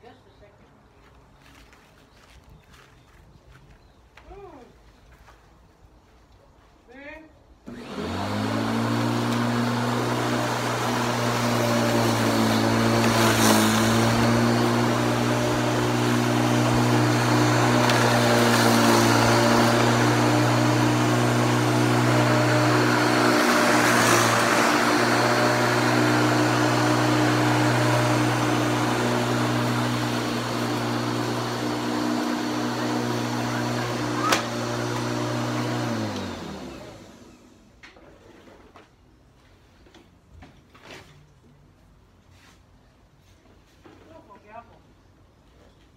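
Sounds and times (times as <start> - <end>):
electric lawnmower running: 7.6 - 37.8.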